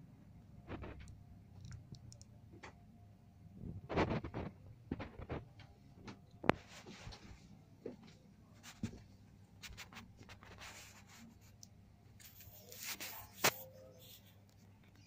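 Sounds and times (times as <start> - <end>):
hands rubbing on plastic: 9.6 - 11.6, 12.2 - 14.5.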